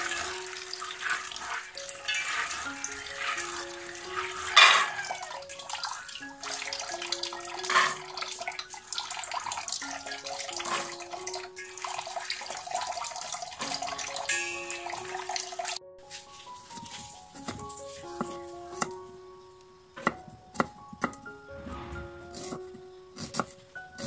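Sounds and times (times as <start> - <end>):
hands rubbing and rinsing peas: 0.0 - 11.4
background music: 0.0 - 24.0.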